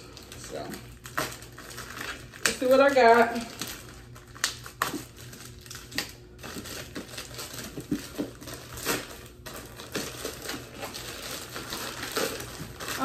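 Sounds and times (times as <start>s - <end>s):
plastic mailer crinkling torn open: 0.0s - 13.0s.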